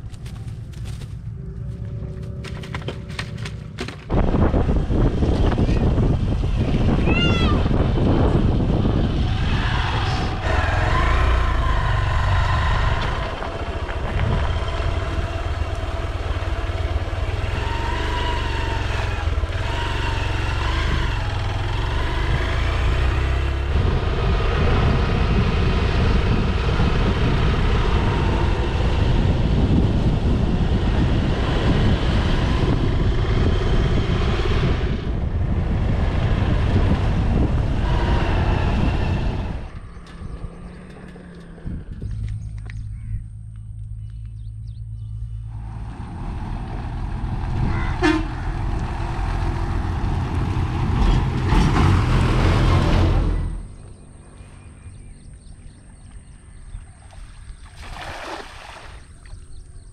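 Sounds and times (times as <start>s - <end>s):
motorcycle engine running: 0.0s - 7.0s, 10.8s - 37.8s
wind rumble on microphone: 0.0s - 59.9s.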